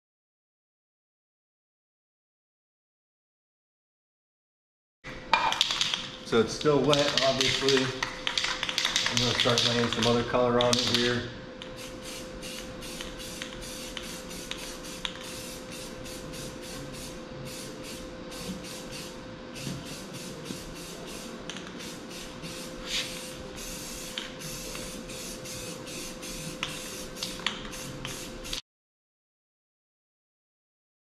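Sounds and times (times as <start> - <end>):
steady low hum: 5.1 - 28.6
spray paint can hissing: 11.8 - 28.6.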